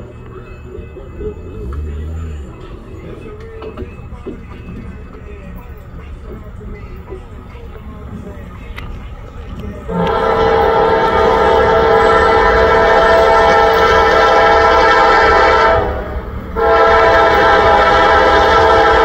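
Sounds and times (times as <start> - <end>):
diesel engines running low: 0.0 - 19.0
locomotive air horn: 9.9 - 19.0.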